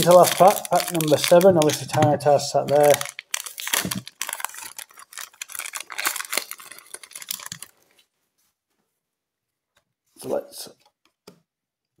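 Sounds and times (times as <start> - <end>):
foil wrappers crinkling: 0.0 - 8.0.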